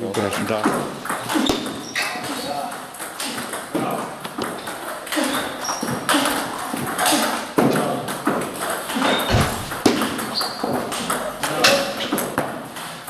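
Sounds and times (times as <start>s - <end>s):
table tennis ball hits: 0.7s - 6.0s, 9.1s - 11.7s.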